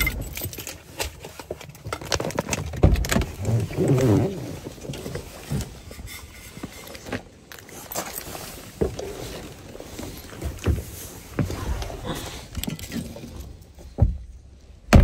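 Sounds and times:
knocks and thumps of gear: 0:00.0 - 0:06.0, 0:12.6 - 0:15.0
rustling of gear: 0:00.0 - 0:14.9.

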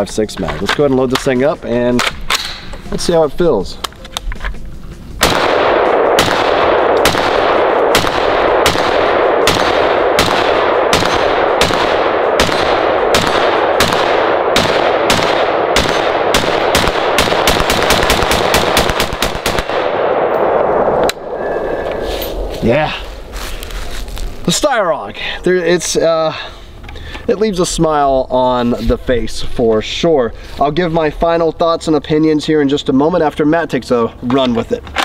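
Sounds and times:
rifle shots: 0:05.2 - 0:21.8.

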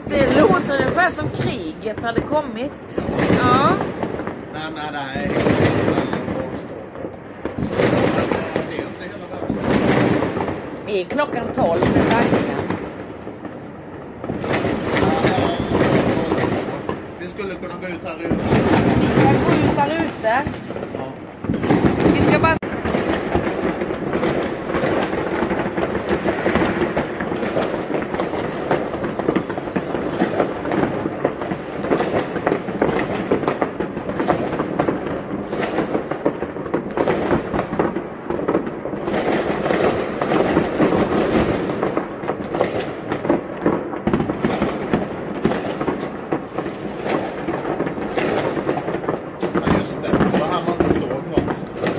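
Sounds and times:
fireworks bangs and crackles: 0:00.0 - 0:51.9
falling firework whistle: 0:14.4 - 0:17.5, 0:21.4 - 0:25.3, 0:27.2 - 0:30.5, 0:31.8 - 0:41.7, 0:44.1 - 0:51.9.

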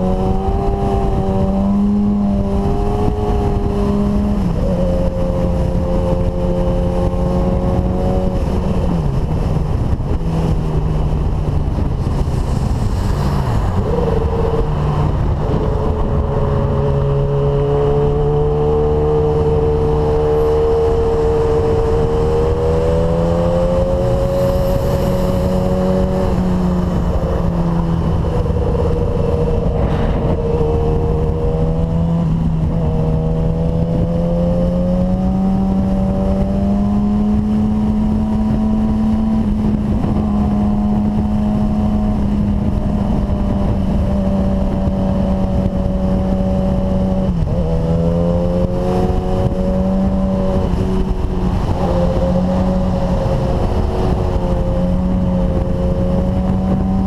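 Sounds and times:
road and wind noise: 0:00.0 - 0:57.0
motorcycle engine running: 0:13.7 - 0:57.0.

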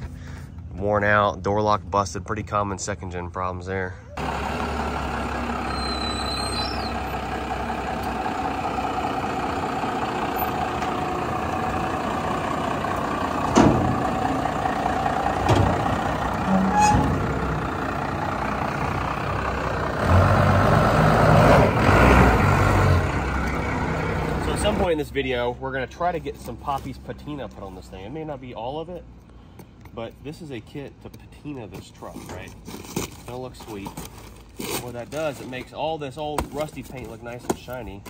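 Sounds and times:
diesel engine running: 0:04.2 - 0:28.2
ramps clanking: 0:10.3 - 0:18.0.

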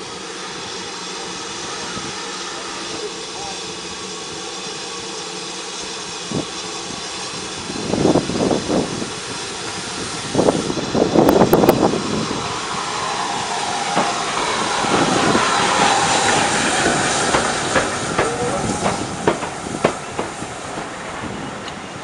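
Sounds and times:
loud hiss of steam: 0:00.0 - 0:22.0
steam locomotive exhaust chuffs: 0:00.0 - 0:22.0
train wheels clicking over rail joints: 0:13.4 - 0:21.8.

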